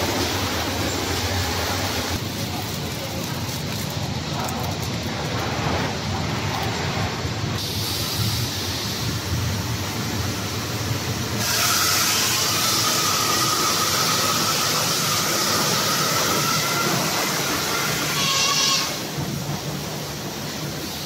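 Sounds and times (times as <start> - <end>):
loud hiss with faint whine: 7.5 - 16.1.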